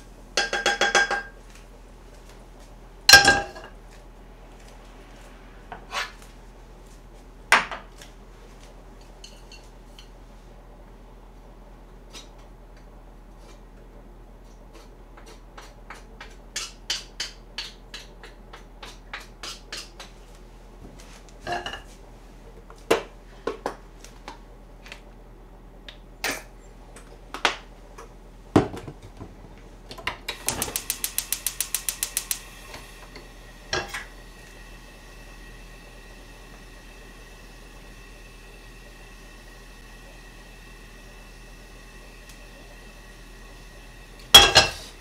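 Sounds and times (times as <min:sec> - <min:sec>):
gas burner hissing: 0:00.0 - 0:01.3, 0:30.2 - 0:45.0
utensils knocking on counter and pan: 0:00.4 - 0:01.4, 0:03.1 - 0:03.7, 0:44.3 - 0:44.8
gas hob igniter clicking: 0:29.9 - 0:34.1.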